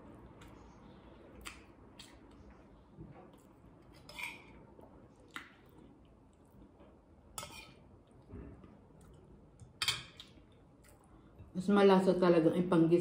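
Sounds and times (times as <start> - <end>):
metal spoon scraping ceramic bowl: 4.0 - 4.6, 7.4 - 7.8.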